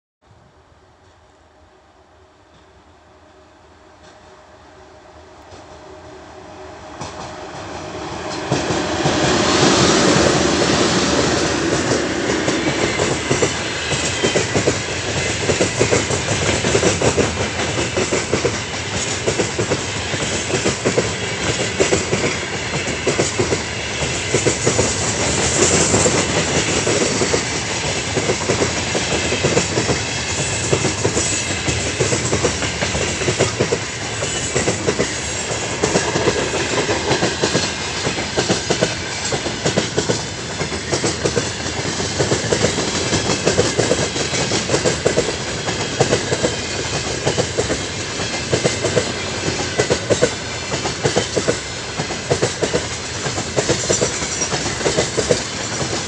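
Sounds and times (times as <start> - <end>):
freight train rumble: 0.4 - 56.0
train wheels clacking over rail joints: 7.0 - 56.0.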